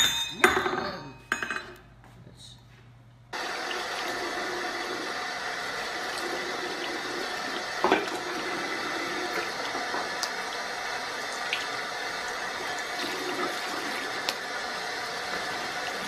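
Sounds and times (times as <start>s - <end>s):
tap water pouring into sink: 3.4s - 16.0s.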